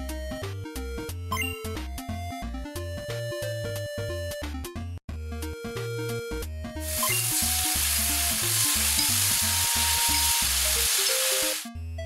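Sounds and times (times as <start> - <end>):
food sizzling in frying pan: 6.8 - 11.7.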